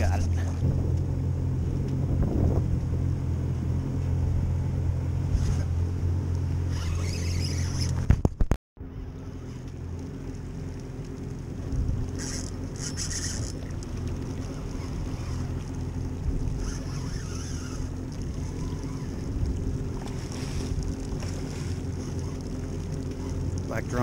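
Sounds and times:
wind buffeting microphone: 0.0 - 7.2, 14.3 - 22.0
boat motor humming: 0.0 - 24.0
water sloshing against hull: 0.0 - 24.0.

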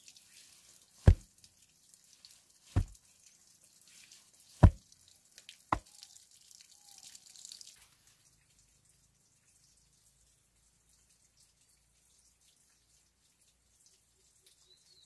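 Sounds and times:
faint scuffing of dirt: 0.4 - 1.3, 2.7 - 3.0, 4.6 - 4.8
stone slab thumping into soil: 1.0 - 1.3, 2.7 - 3.0, 4.6 - 4.8.

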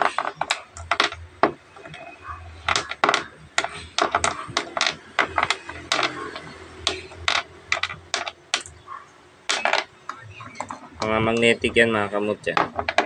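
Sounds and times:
stones knocking on tabletop: 0.0 - 2.0, 2.7 - 8.7, 9.5 - 9.9, 12.5 - 13.0
magnetic stones clicking on steel: 0.0 - 8.8, 9.5 - 11.5.

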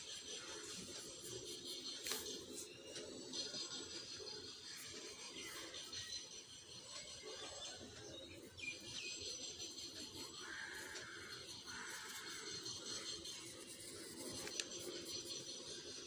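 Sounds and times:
pencil scratching on paper: 9.8 - 16.0.

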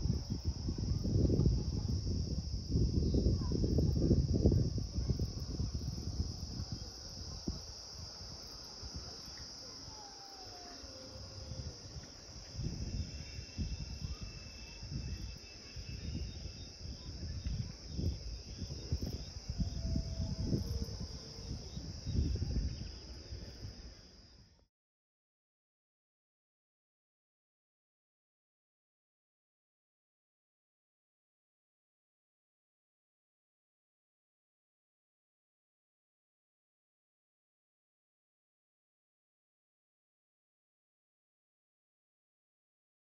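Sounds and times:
insects trilling: 0.0 - 24.6
wind rumble on microphone: 0.0 - 24.6.

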